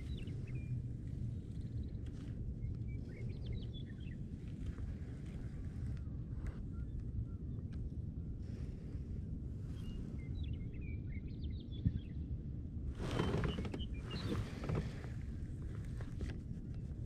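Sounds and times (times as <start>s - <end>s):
steady low rumble: 0.0s - 17.0s
rustling noise: 12.9s - 17.0s.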